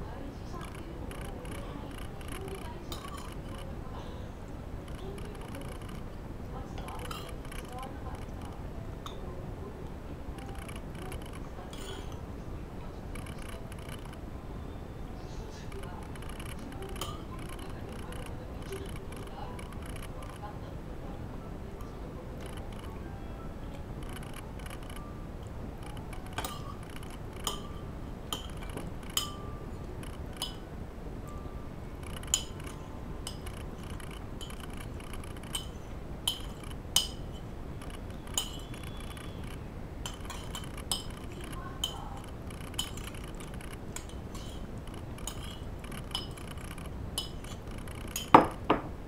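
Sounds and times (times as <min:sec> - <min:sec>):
spoon clattering on plate: 0:01.2 - 0:03.6, 0:06.8 - 0:07.9, 0:10.4 - 0:12.2, 0:25.9 - 0:30.7, 0:32.1 - 0:48.9
metal spoon clinking on ceramic plate: 0:02.9 - 0:03.6, 0:06.8 - 0:07.8, 0:11.7 - 0:12.2, 0:16.2 - 0:18.1, 0:25.9 - 0:29.7, 0:30.3 - 0:30.7, 0:32.1 - 0:37.5, 0:38.4 - 0:39.4, 0:40.0 - 0:46.6, 0:47.2 - 0:48.8.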